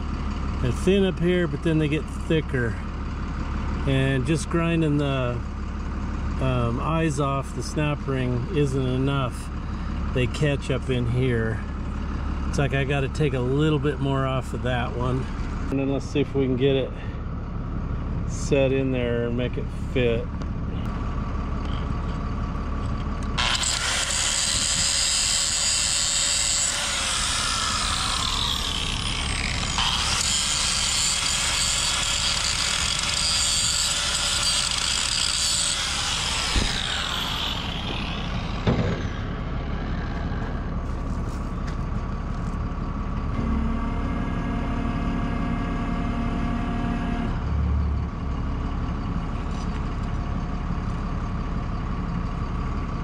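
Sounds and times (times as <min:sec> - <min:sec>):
engine idling: 0:00.0 - 0:53.0
crane hoist whine: 0:19.3 - 0:53.0
dull thump: 0:38.6 - 0:39.2.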